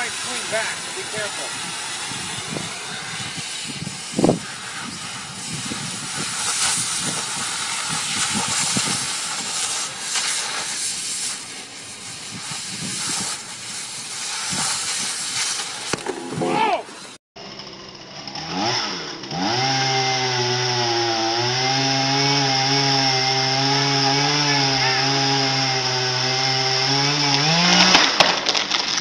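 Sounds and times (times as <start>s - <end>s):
cutting torch hissing: 0.0s - 17.2s.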